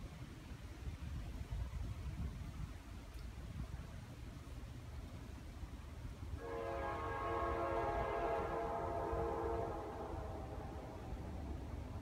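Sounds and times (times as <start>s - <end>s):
distant locomotive horn: 6.4s - 11.8s.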